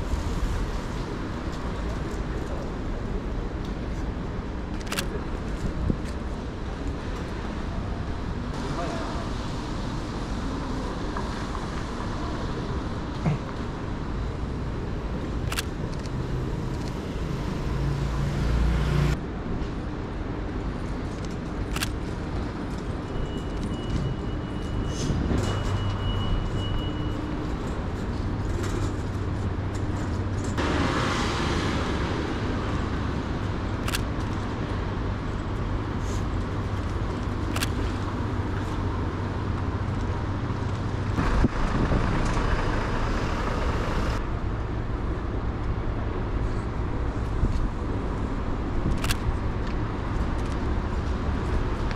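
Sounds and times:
low traffic rumble: 0.0 - 51.9
cars passing: 8.6 - 19.2, 24.6 - 45.2.

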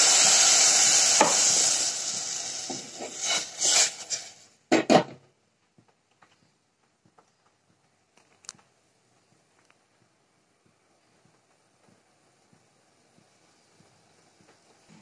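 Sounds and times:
water sizzling in hot pan: 0.0 - 4.6.

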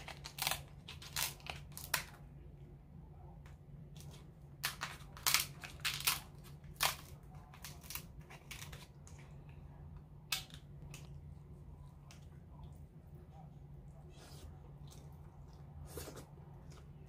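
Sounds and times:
scissors cracking crab shell: 0.0 - 2.2
low steady hum: 0.0 - 17.0.

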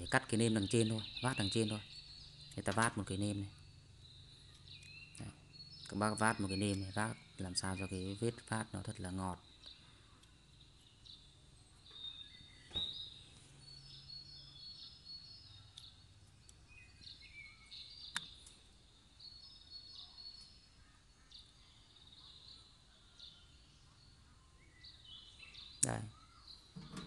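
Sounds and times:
faint birds chirping: 0.0 - 27.0
sharp clicks: 18.1 - 18.6.

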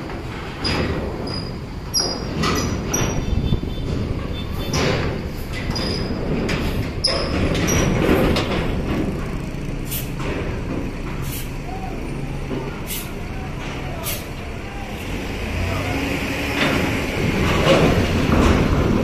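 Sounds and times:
bus diesel engines running: 0.0 - 19.0
air brake hisses: 9.8 - 10.2, 11.2 - 11.6, 12.8 - 13.2, 14.0 - 14.3.

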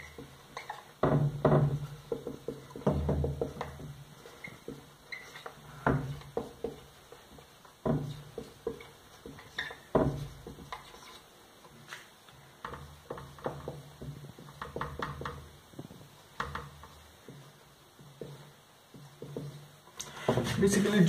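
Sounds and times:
marker squeaking on whiteboard: 0.0 - 1.0, 4.2 - 12.0.

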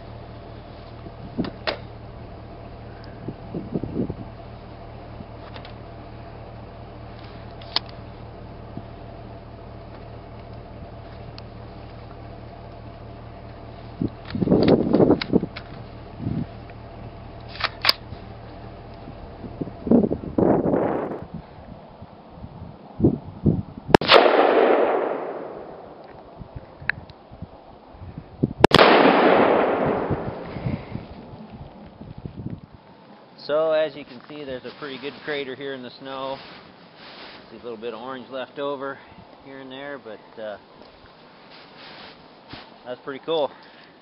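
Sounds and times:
steady low hum: 0.0 - 44.0
rifle clicks: 17.4 - 18.1
exploding target detonating: 23.9 - 26.0, 28.6 - 31.1
rifle shot with echo: 24.0 - 26.0, 28.6 - 30.9.

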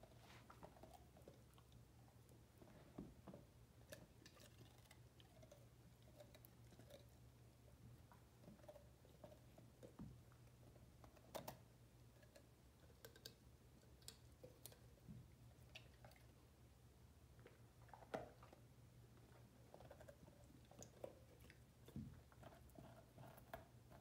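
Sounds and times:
puppy crunching a carrot: 0.0 - 2.7, 3.7 - 16.4, 17.3 - 24.0.

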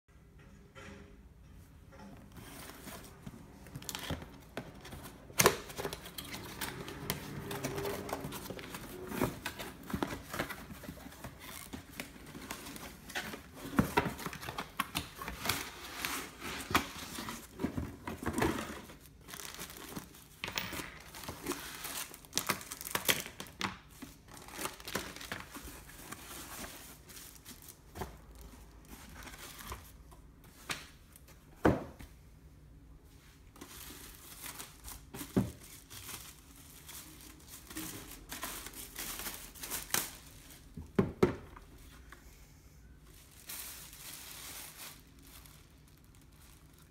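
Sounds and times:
cardboard and foam handled: 2.3 - 32.1
plastic wrapping crinkling: 2.5 - 30.0, 33.5 - 40.8, 43.0 - 46.9.

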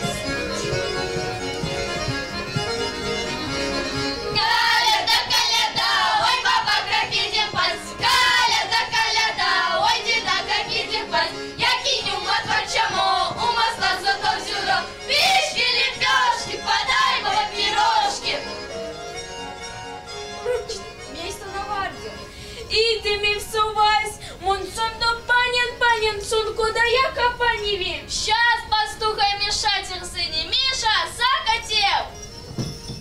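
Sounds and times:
instrumental backing music: 0.0 - 28.2, 30.4 - 33.0
girls singing in chorus: 4.4 - 18.5.

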